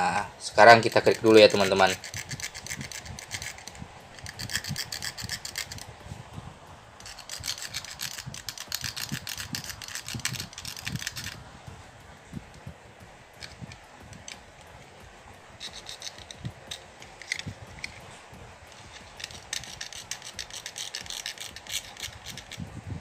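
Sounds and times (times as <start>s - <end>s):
knife blade scraping wire insulation: 0.9s - 5.9s.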